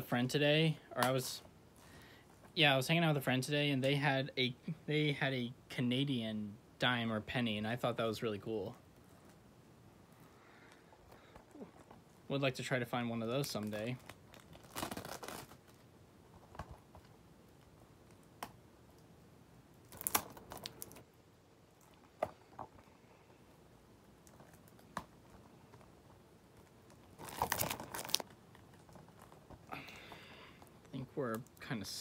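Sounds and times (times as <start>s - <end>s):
plastic shrink wrap crinkling and tearing: 13.3s - 15.8s, 19.8s - 21.0s, 26.6s - 31.7s.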